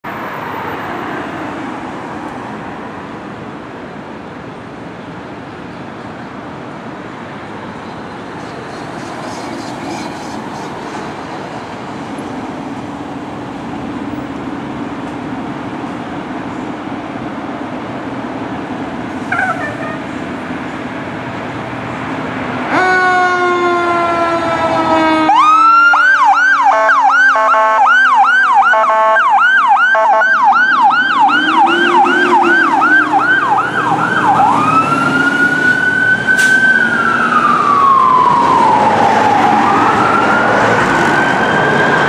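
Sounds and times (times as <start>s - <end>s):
street traffic: 0.0s - 42.0s
car passing: 29.4s - 42.0s.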